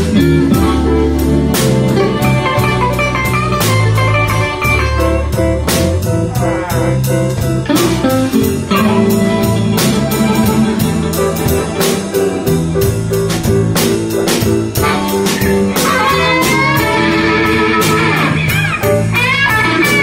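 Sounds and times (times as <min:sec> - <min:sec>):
drum kit beat: 0:00.0 - 0:20.0
electric guitar: 0:00.0 - 0:20.0
amplified harmonica: 0:08.1 - 0:12.7, 0:14.8 - 0:20.0.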